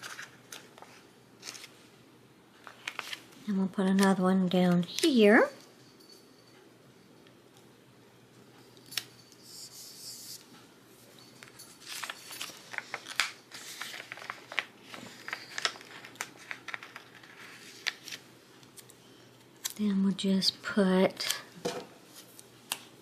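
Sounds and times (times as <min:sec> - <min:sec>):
paper sheets rustling and ticking: 0:00.0 - 0:01.8, 0:02.6 - 0:05.2, 0:11.4 - 0:18.9.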